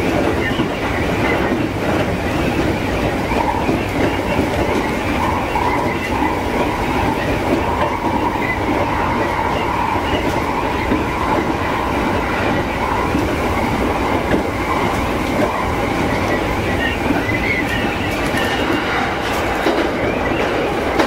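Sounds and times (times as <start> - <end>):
train wheels rumbling on rails: 0.0 - 21.0.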